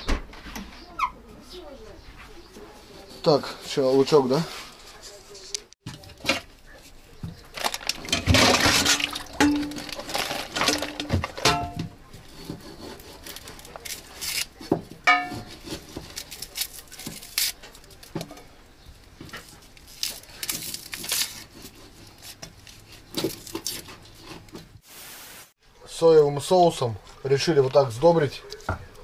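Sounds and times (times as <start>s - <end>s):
utensils knocking and scraping: 7.2s - 16.2s.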